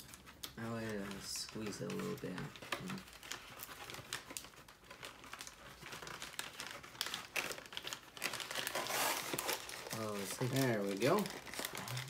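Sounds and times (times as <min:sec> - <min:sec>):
packaging crinkling: 0:00.0 - 0:12.0.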